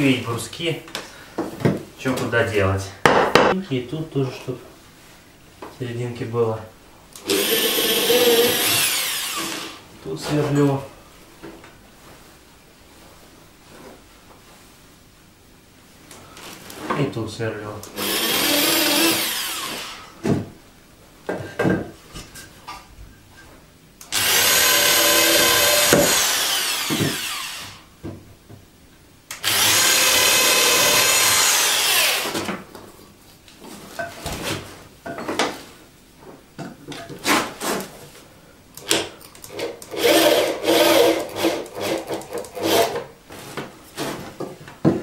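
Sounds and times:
electric drill boring into wood: 0:07.2 - 0:09.8, 0:18.0 - 0:20.1, 0:24.1 - 0:27.8, 0:29.3 - 0:32.4, 0:39.5 - 0:43.0.

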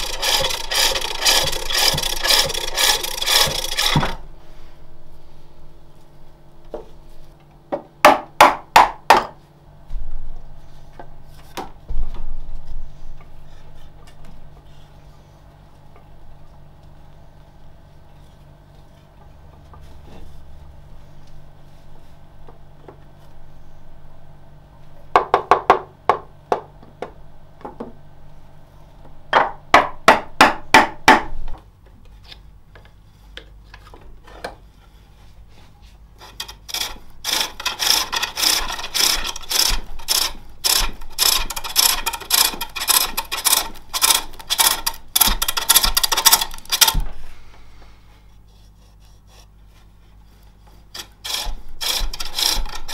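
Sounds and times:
lathe tool scraping wood: 0:00.0 - 0:04.2, 0:36.2 - 0:47.1, 0:50.5 - 0:52.9
wooden knocks and scrapes: 0:00.0 - 0:04.2.

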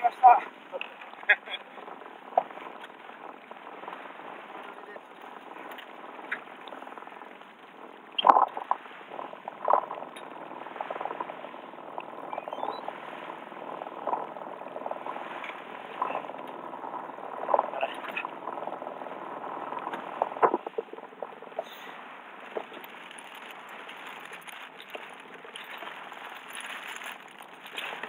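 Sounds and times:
water slapping against boat hull: 0:19.7 - 0:28.0
splashes and knocks: 0:22.4 - 0:28.0.

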